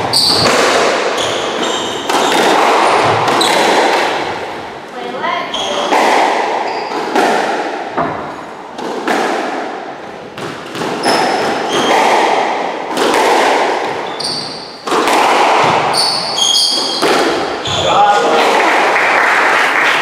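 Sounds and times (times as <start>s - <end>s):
shoes squeaking on wooden floor: 0.0s - 4.3s, 5.2s - 5.9s, 6.6s - 7.2s, 10.6s - 12.1s, 13.8s - 15.0s, 15.6s - 18.0s
squash ball hitting rackets and walls: 0.0s - 18.1s.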